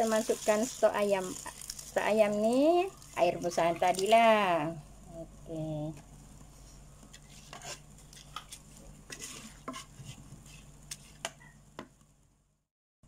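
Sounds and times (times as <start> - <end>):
steady low hum: 0.0 - 12.6
wooden spatula stirring rice in pot: 6.4 - 11.4.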